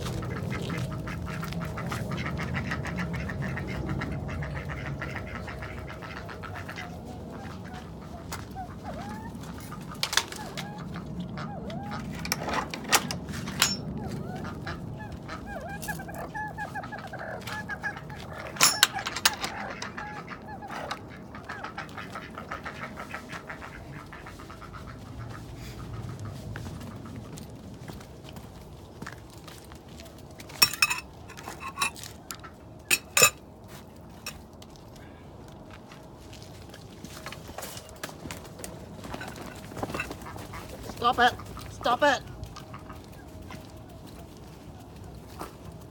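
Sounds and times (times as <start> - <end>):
metal dishes clinking: 12.2 - 13.9, 18.6 - 19.9, 30.6 - 32.1, 32.9 - 33.4
sharp clicks and knocks: 32.9 - 33.4.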